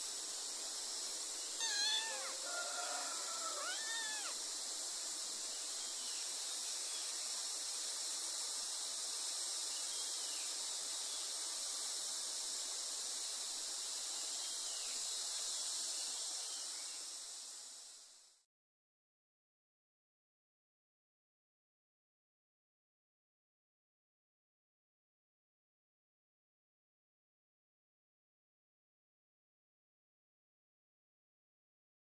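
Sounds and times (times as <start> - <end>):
steady hiss: 0.0 - 18.5
kitten meowing: 1.6 - 2.4, 3.5 - 4.4.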